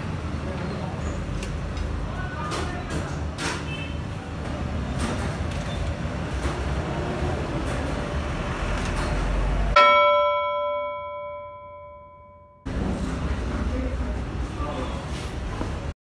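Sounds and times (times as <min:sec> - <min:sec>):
eatery background noise: 0:00.0 - 0:09.8
struck bell chime: 0:09.8 - 0:12.7.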